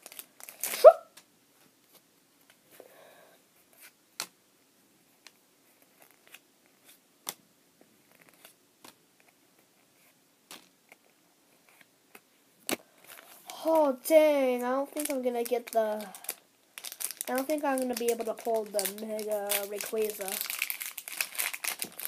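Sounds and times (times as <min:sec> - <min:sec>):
foil wrapper crinkle: 0:00.0 - 0:00.9, 0:15.0 - 0:22.0.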